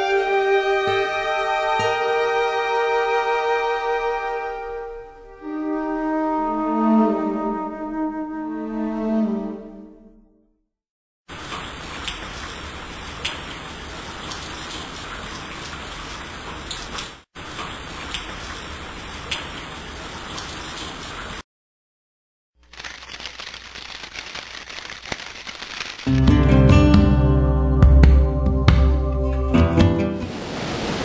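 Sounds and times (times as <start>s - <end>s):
music: 0.0s - 10.5s, 26.1s - 30.3s
heavy rain: 11.3s - 21.4s, 29.5s - 31.0s.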